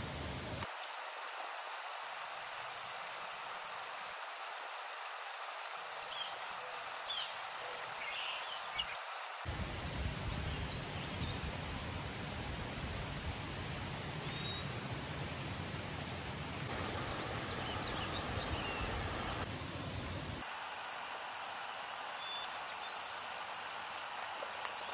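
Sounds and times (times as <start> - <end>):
faint bird chirps: 2.3 - 3.1.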